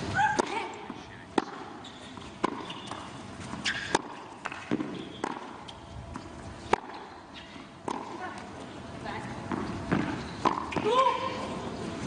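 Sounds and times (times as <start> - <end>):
tennis ball popping off rackets: 2.4 - 7.0, 9.5 - 10.9.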